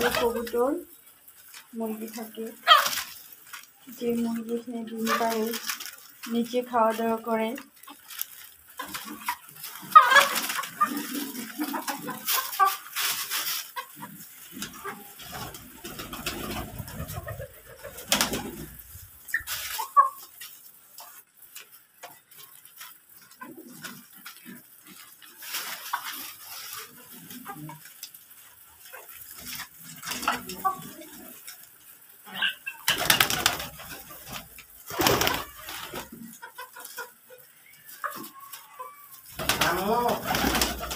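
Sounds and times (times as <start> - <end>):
pigeons cooing: 0.0 - 0.6, 8.9 - 12.8, 13.9 - 19.6, 37.9 - 40.9
birds pecking at grain: 0.0 - 40.9
wing flapping: 14.4 - 19.9, 32.8 - 36.1, 39.3 - 40.9.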